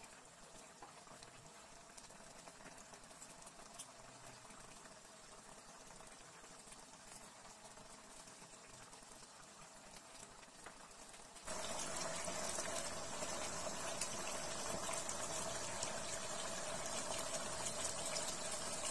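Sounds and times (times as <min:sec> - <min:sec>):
sauce bubbling in frying pan: 0:00.0 - 0:18.9
thin steady hum: 0:11.5 - 0:18.9.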